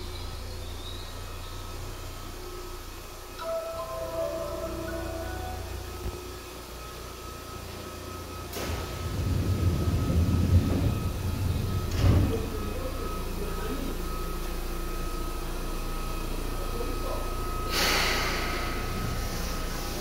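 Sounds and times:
electric train hum: 0.0s - 20.0s
electric train rumble: 0.0s - 20.0s
compressed air hiss: 17.7s - 19.8s.

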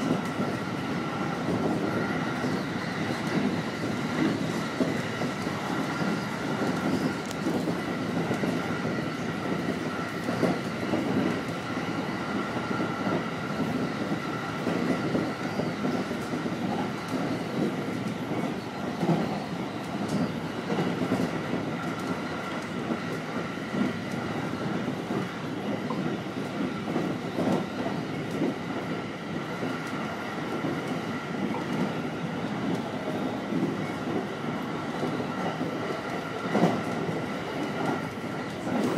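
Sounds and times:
train wheels rumbling on rail: 0.0s - 38.9s.

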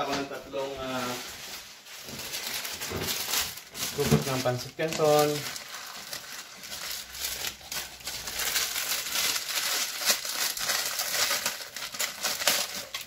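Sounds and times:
dry noodles crinkling and crackling: 0.1s - 13.0s.

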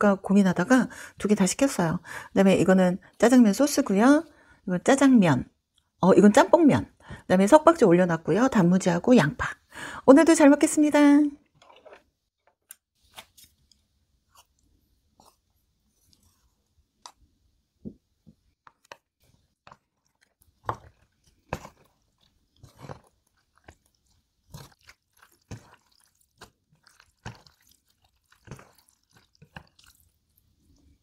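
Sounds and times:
chopsticks stirring sticky noodles: 13.6s - 17.3s, 18.5s - 31.0s.

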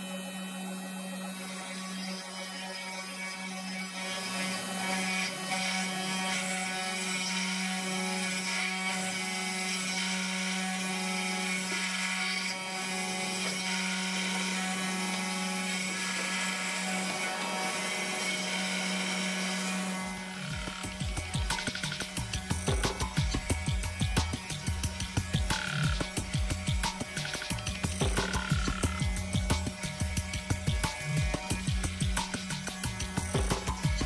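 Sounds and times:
router spindle whine: 0.0s - 34.0s
bit rasping wood: 0.2s - 34.0s
stepping machine tones: 20.3s - 34.0s.

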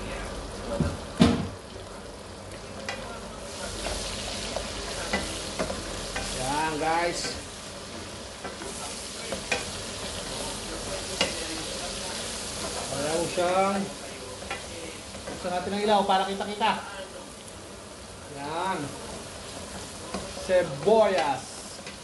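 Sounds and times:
food sizzling in a wok: 0.0s - 22.0s
spatula scraping wok: 3.4s - 16.6s.

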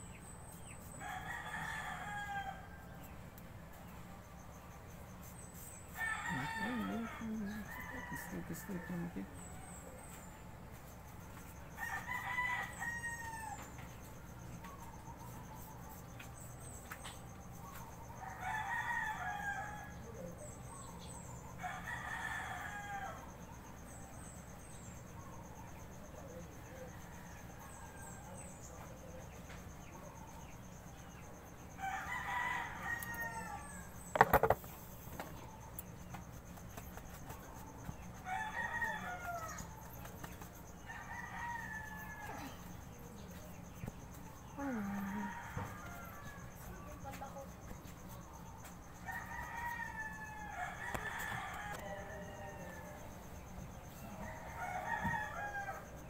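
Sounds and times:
roosters crowing: 1.0s - 2.9s, 5.9s - 9.4s, 11.7s - 13.8s, 21.6s - 23.3s, 31.7s - 35.5s, 37.0s - 43.3s, 43.9s - 46.8s, 49.0s - 56.0s.

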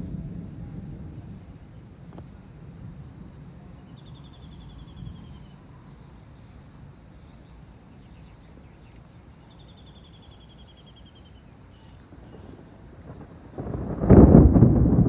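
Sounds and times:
low rumble: 0.0s - 5.6s, 12.2s - 15.0s
outdoor background hiss: 0.0s - 15.0s.

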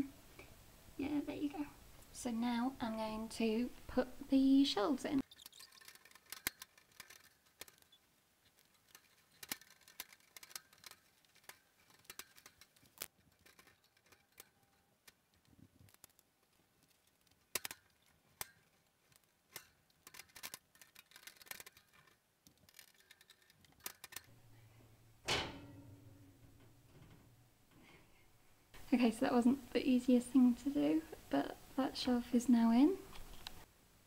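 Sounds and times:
wire shelf clinking against metal: 25.2s - 27.4s.

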